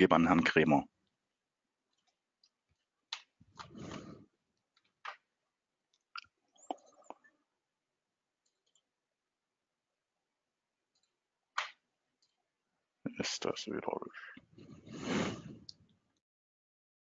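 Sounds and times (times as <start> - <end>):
faint clicks: 8.4 - 8.9, 10.9 - 12.4.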